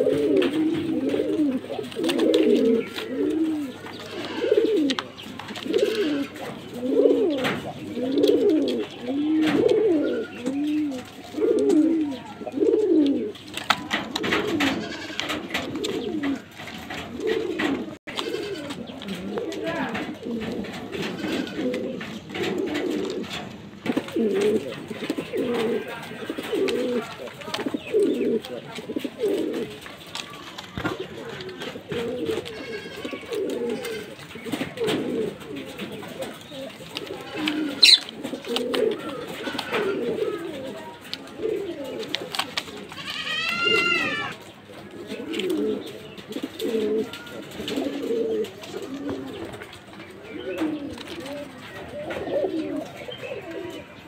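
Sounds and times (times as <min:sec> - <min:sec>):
pigeons cooing: 0:00.0 - 0:54.0
high-pitched bird call: 0:37.8 - 0:38.0.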